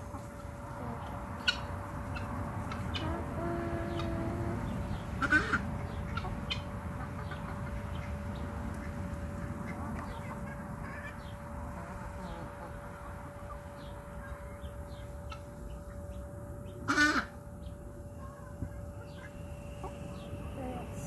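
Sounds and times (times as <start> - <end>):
faint steady hum: 0.0 - 21.0
outdoor background noise: 0.0 - 21.0
hen squawking: 1.5 - 6.3, 16.9 - 17.4.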